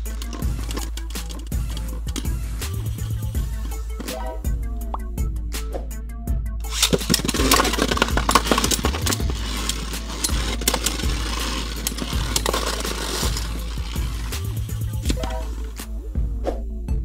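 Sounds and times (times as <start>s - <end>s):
spinning tops clattering hits: 0.0s - 4.3s, 6.6s - 15.9s
spinning tops whirring: 0.0s - 4.4s, 6.6s - 15.9s.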